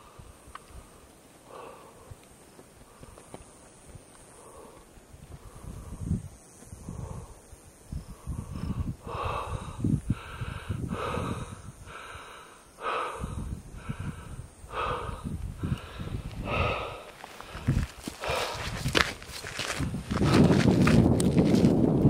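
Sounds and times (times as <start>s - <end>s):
person breathing hard: 0.0s - 3.6s, 4.3s - 6.2s, 6.8s - 20.6s
low rumbling wind noise: 0.0s - 22.0s.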